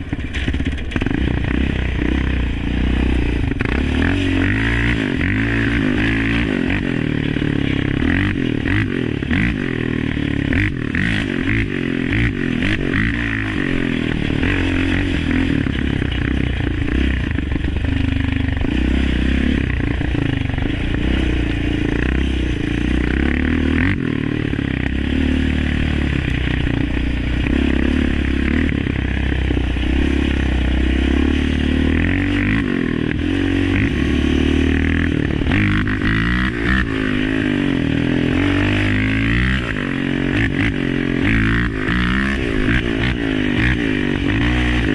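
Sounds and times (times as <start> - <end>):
machine knocking and scraping ground: 0.0 - 2.5, 3.2 - 37.2
atv engine revving: 0.0 - 44.9.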